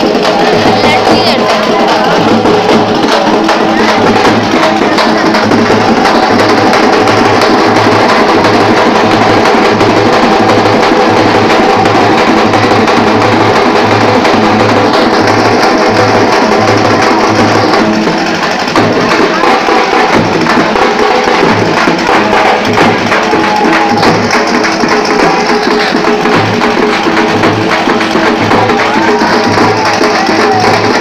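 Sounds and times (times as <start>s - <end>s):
festival music with drums: 0.0s - 31.0s.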